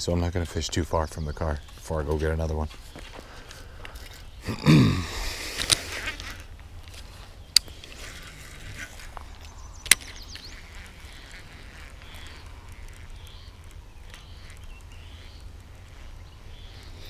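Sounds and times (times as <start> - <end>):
sharp clicks: 8.8 - 17.0.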